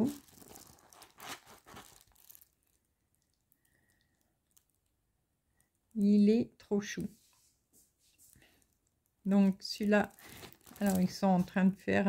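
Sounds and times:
plastic film crinkling: 0:00.0 - 0:04.9, 0:07.8 - 0:11.8.

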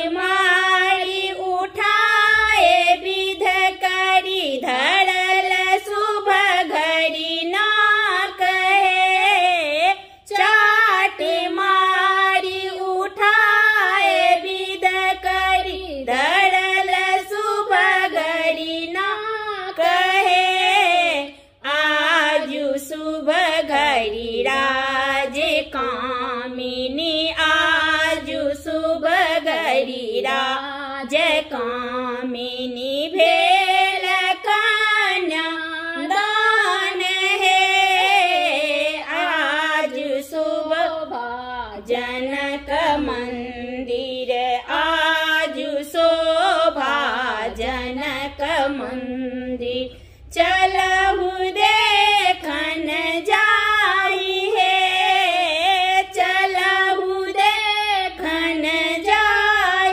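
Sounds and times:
two women singing folk song: 0:00.0 - 0:59.9.

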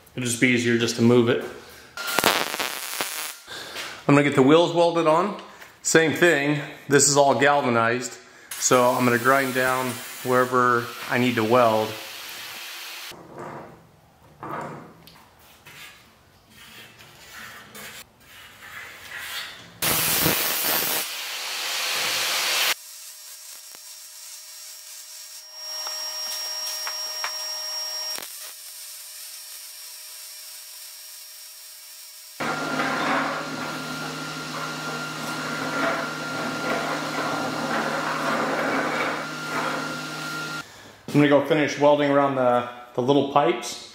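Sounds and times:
welder humming and crackling: 0:02.0 - 0:03.5, 0:08.6 - 0:13.1, 0:19.8 - 0:40.6
angle grinder grinding steel: 0:19.8 - 0:40.6.

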